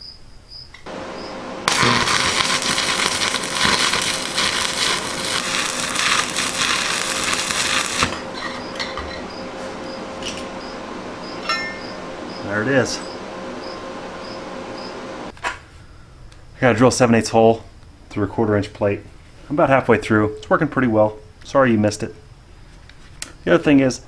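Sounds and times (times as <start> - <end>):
arc welding crackle: 0.9 - 15.3.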